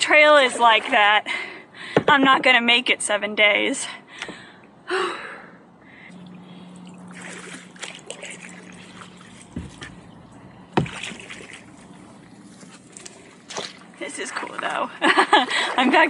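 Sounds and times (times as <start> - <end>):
steady low hum: 3.9 - 14.2
paddle strokes in water: 6.1 - 16.0.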